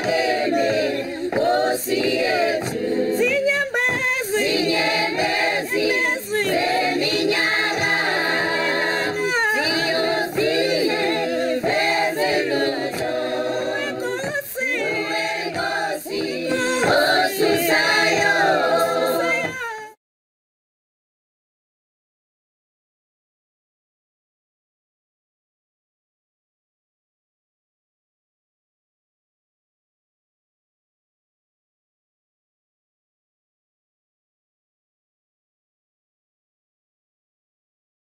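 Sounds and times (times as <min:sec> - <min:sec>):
choir singing a cappella: 0:00.0 - 0:19.6.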